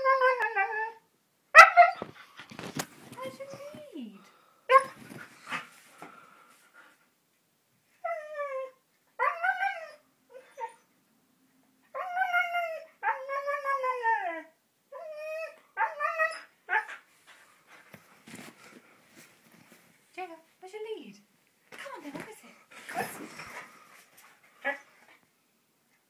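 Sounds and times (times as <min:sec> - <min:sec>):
dog whining and howling: 0:00.0 - 0:02.1, 0:08.0 - 0:10.9, 0:11.9 - 0:17.0.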